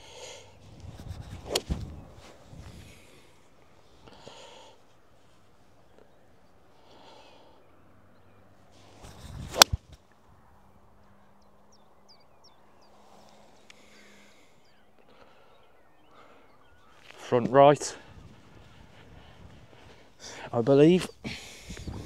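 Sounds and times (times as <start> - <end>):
golf club swishing: 0.6 - 3.0, 8.8 - 10.0
club striking golf ball: 9.5 - 9.8.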